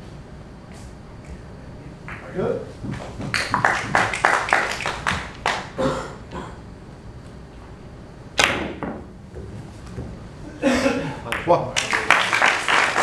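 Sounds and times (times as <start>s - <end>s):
cue striking ball: 8.4s - 10.2s.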